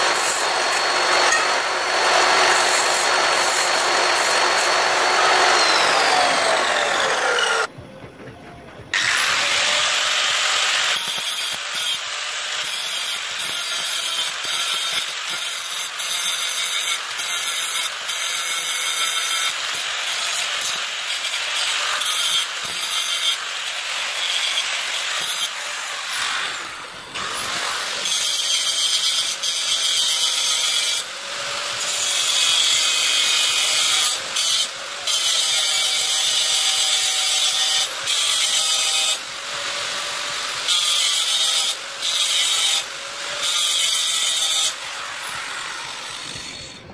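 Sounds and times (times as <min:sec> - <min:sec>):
angle grinder grinding metal: 0:00.0 - 0:07.7, 0:09.0 - 0:46.9
cut-off saw spinning down: 0:00.0 - 0:07.7.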